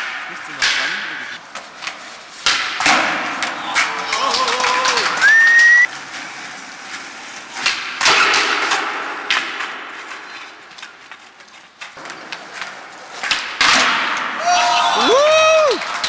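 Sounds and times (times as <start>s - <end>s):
skateboard cracking on concrete: 0.5s - 14.6s, 15.2s - 16.0s
skateboard rolling and scraping: 1.4s - 14.5s
rising whistle: 5.2s - 5.9s.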